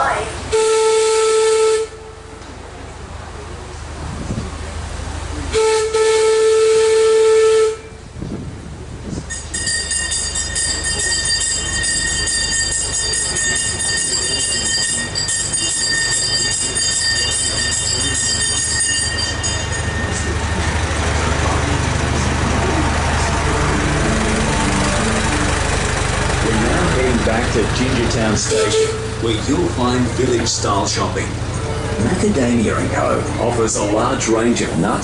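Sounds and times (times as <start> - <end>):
diesel engine running: 0.0 - 35.0
wheels squealing on rails: 9.0 - 35.0.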